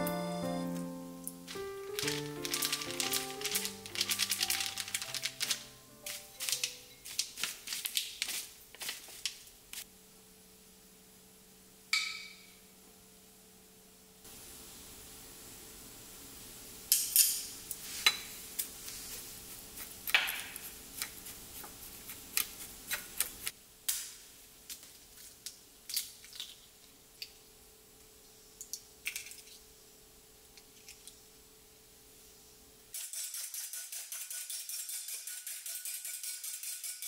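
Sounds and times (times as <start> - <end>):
spoons tapping glass bowl: 12.0 - 12.5.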